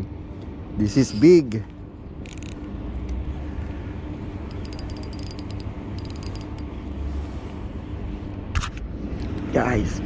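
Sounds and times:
fishing reel gears whirring: 0:02.2 - 0:02.6, 0:04.5 - 0:06.6
rapid ratcheting clicks: 0:02.2 - 0:02.6, 0:04.5 - 0:06.6.

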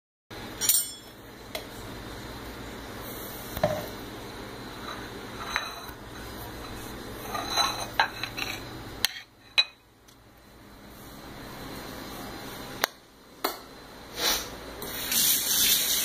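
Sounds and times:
steady background hum: 0:00.3 - 0:16.0
knife clinking against plate and jar: 0:00.6 - 0:01.2.

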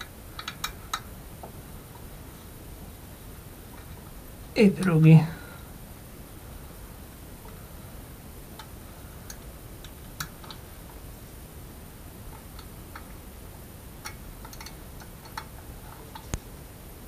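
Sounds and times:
small metallic clicks: 0:14.0 - 0:16.4.

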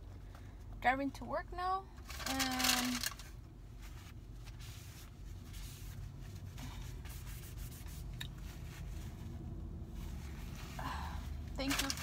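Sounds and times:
hands rubbing and rustling: 0:03.7 - 0:10.8.

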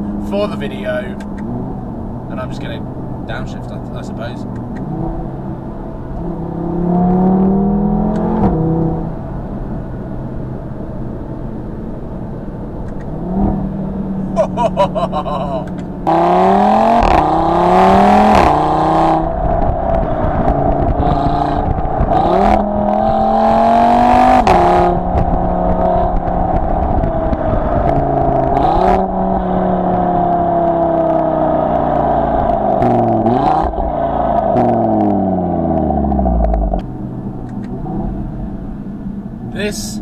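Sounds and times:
exhaust cracks: 0:00.0 - 0:05.2, 0:12.8 - 0:39.6
car engine and exhaust revving: 0:00.0 - 0:40.0.

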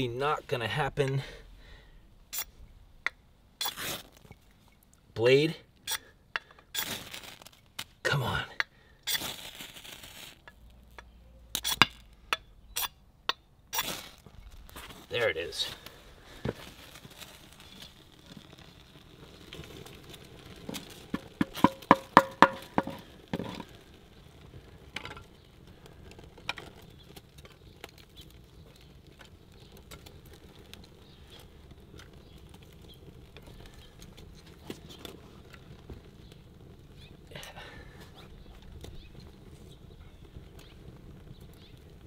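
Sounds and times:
wood knocking: 0:21.1 - 0:23.7.

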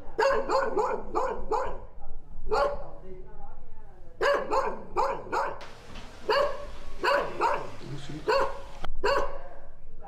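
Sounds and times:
dog barking: 0:00.1 - 0:01.9, 0:02.5 - 0:02.9, 0:04.2 - 0:09.4.

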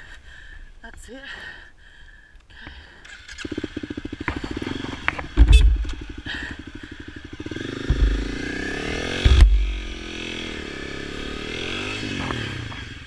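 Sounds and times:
motorcycle engine running: 0:03.0 - 0:13.0.

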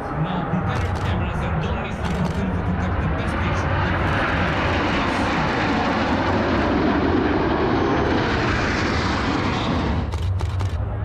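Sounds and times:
jet aircraft passing low overhead: 0:00.0 - 0:11.0.

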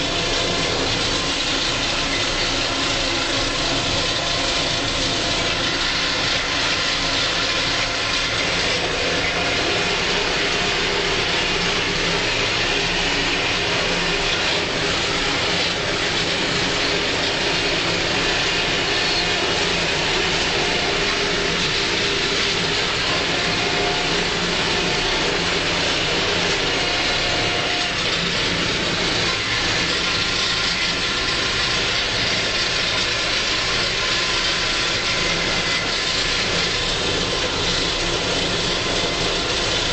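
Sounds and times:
tractor diesel engine drone: 0:00.0 - 0:39.9.

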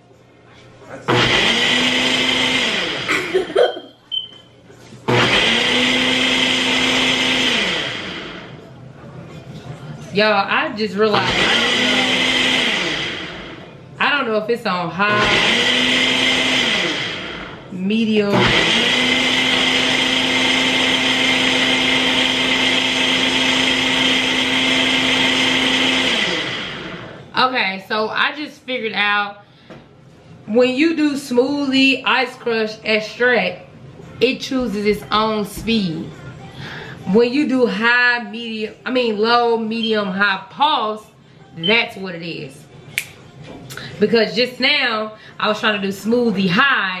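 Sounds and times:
blender motor running: 0:01.1 - 0:03.2, 0:05.1 - 0:08.6, 0:11.1 - 0:13.6, 0:15.0 - 0:27.2.

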